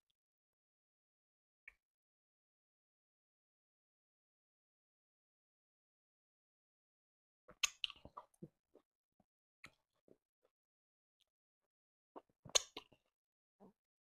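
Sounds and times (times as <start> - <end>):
chewing clicks: 12.5 - 13.0.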